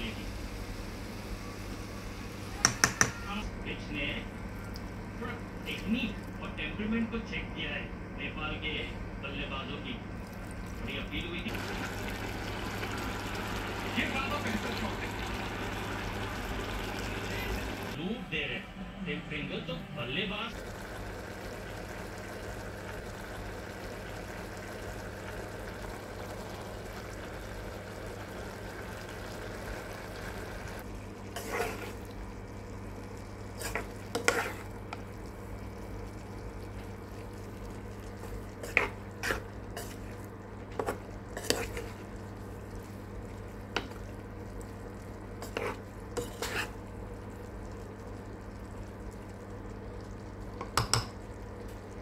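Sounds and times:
steady low hum: 0:03.3 - 0:52.0
spatula scraping a pan: 0:31.3 - 0:32.1, 0:33.5 - 0:34.8, 0:38.5 - 0:42.1, 0:45.4 - 0:46.8.

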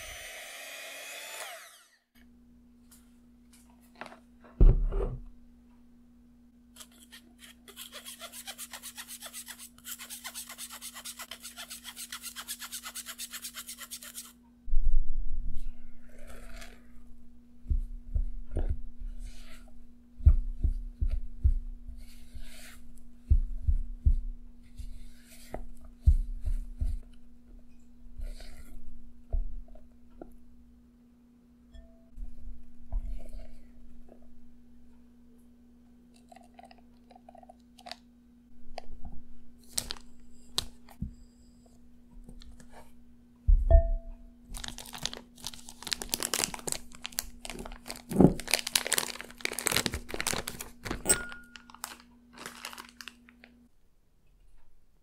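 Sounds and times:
thump: 0:04.6 - 0:05.3.

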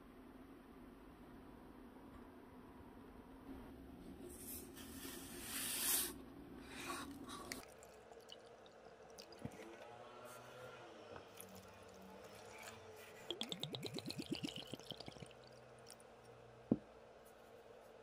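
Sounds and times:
liquid trickling into a cup: 0:07.2 - 0:09.8, 0:11.3 - 0:16.1
sugar pouring hiss: 0:11.4 - 0:15.6.

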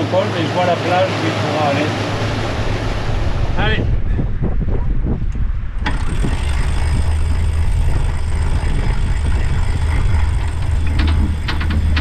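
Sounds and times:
boat engine running: 0:00.0 - 0:12.0
wind: 0:00.0 - 0:12.0
winch clicking: 0:05.8 - 0:12.0.

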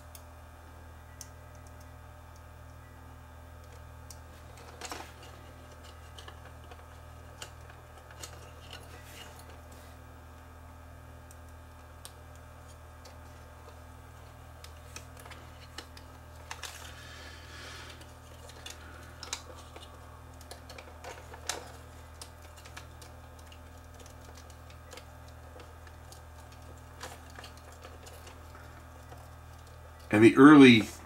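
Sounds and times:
steady low hum: 0:00.0 - 0:31.0
plastic parts clicking: 0:17.9 - 0:30.1.

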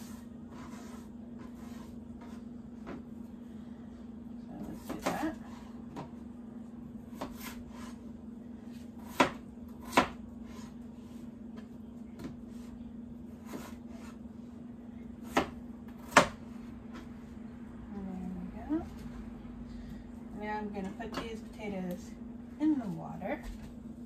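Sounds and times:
knife chopping on cutting board: 0:04.7 - 0:06.1, 0:07.1 - 0:08.0, 0:08.7 - 0:10.8, 0:13.4 - 0:14.2, 0:15.2 - 0:17.0.

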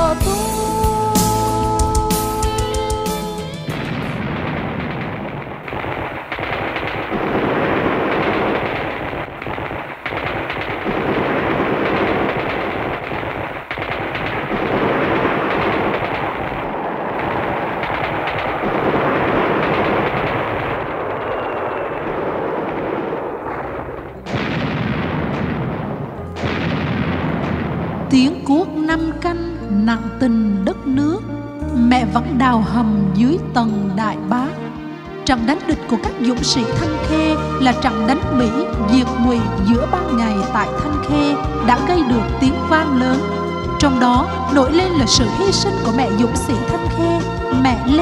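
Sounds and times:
machine-gun fire over loudspeakers: 0:02.8 - 0:29.0.

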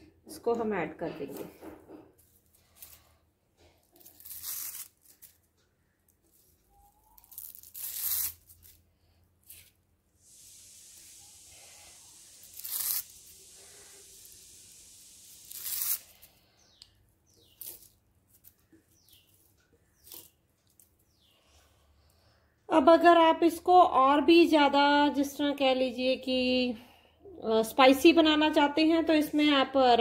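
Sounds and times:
steady hiss: 0:10.2 - 0:16.3.

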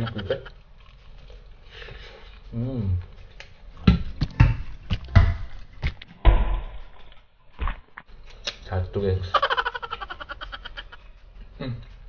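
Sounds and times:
crunching chewing: 0:00.5 - 0:03.5.

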